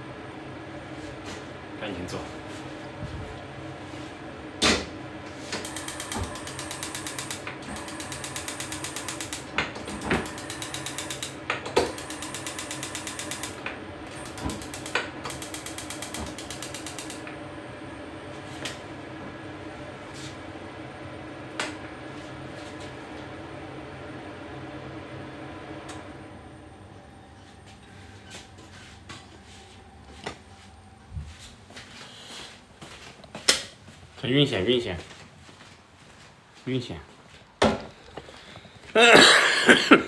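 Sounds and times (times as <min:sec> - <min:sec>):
mechanical ratchet clicking: 0:11.9 - 0:13.6, 0:14.3 - 0:17.2.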